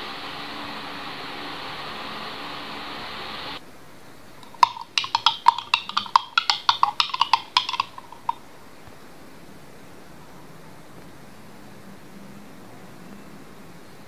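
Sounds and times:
steady hiss: 0.0 - 14.0
spoon clinking in glass jar: 4.4 - 8.4.

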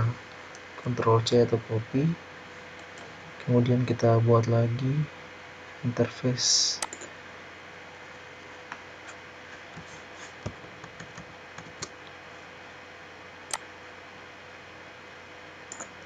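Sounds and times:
faint background hiss: 0.0 - 9.0.

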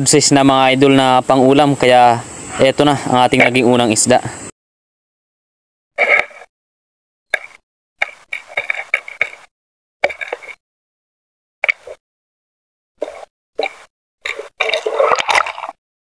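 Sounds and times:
water plopping and bubbling: 13.0 - 15.8.

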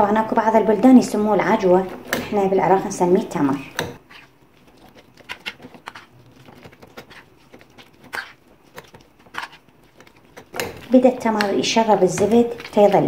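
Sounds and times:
metal spoon scraping a pan: 3.8 - 13.0.

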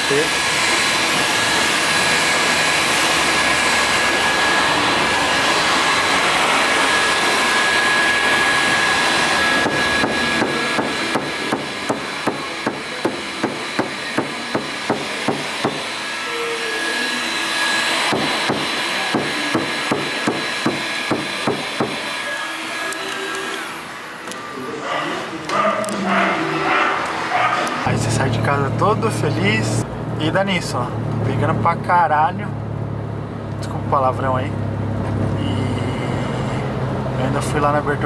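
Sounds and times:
whirring machine: 0.0 - 29.9
hammer striking: 9.5 - 15.9, 18.0 - 22.1.

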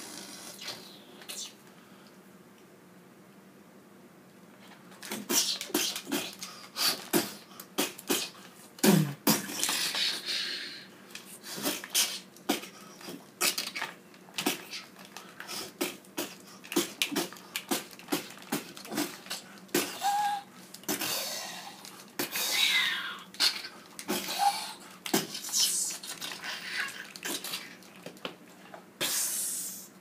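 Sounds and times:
mouth clicks pops and hisses: 0.1 - 1.6, 5.1 - 10.0, 15.6 - 20.0.

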